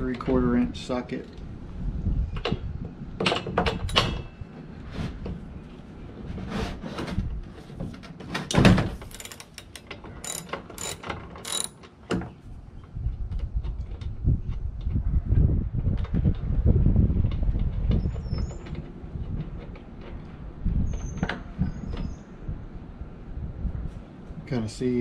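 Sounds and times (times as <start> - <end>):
socket wrench clicking: 9.1 - 11.9.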